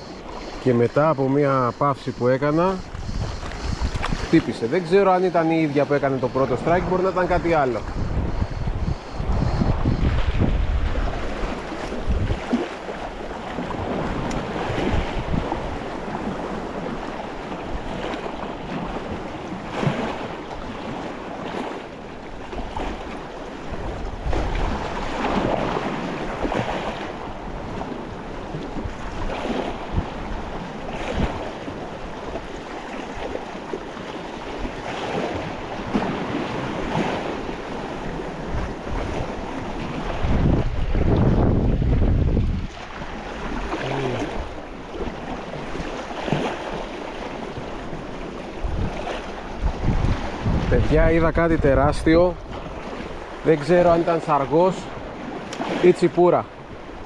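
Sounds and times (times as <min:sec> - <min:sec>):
sea waves washing onto shore: 0:00.0 - 0:08.3, 0:09.2 - 0:57.0
wind buffeting microphone: 0:00.0 - 0:55.7.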